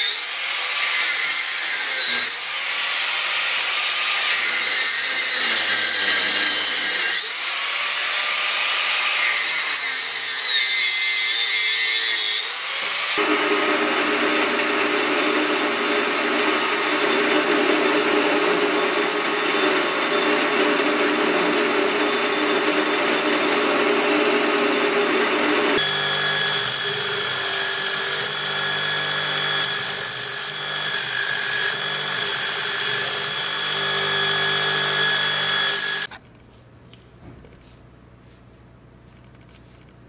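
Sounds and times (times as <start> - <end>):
power tool grinding steel: 0.0 - 36.1
power tool whine: 12.4 - 36.1.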